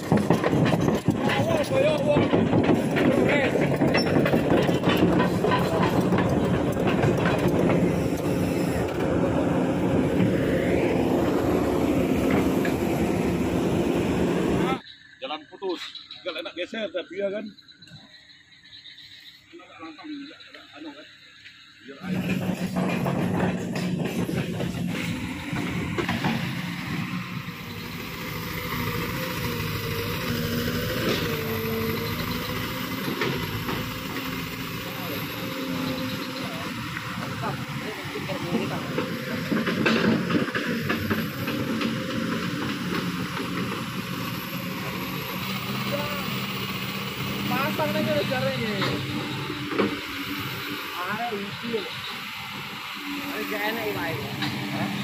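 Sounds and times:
sharp knocks: 0.0s - 8.4s
excavator diesel engine running: 0.0s - 15.3s, 17.6s - 55.0s.

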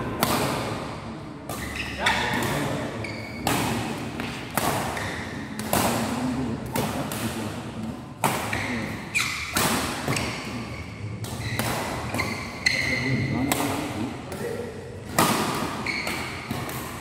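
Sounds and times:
rackets hitting shuttlecock: 0.0s - 17.0s
sneakers squeaking on court: 1.5s - 5.6s, 8.2s - 13.8s, 15.5s - 17.0s.

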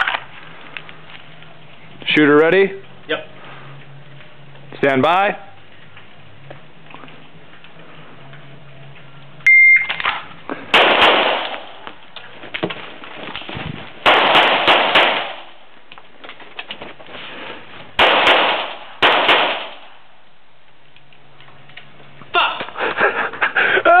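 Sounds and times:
gunshots: 10.0s - 11.8s, 14.0s - 15.6s, 18.0s - 20.0s.

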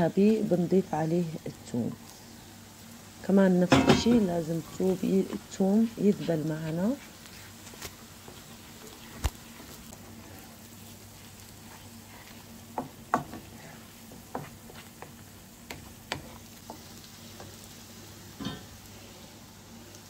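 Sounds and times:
onion sizzling in butter: 0.0s - 20.0s
wooden spoon knocking on pan: 12.7s - 16.9s.

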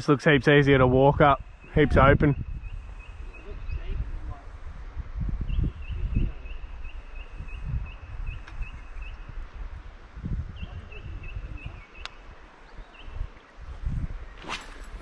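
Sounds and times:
low rumbling microphone noise: 0.0s - 15.0s
bird chirping: 1.5s - 4.0s, 5.4s - 9.4s, 10.5s - 15.0s.

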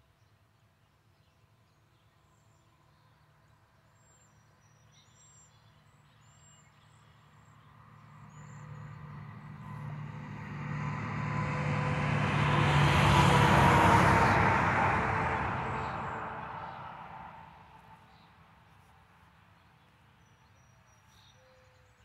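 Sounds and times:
truck passing on highway: 7.3s - 18.0s.

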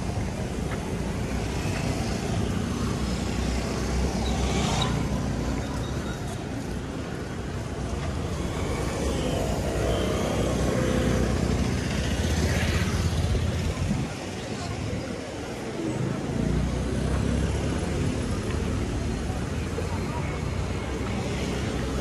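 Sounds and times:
vehicles passing close by: 0.0s - 22.0s.

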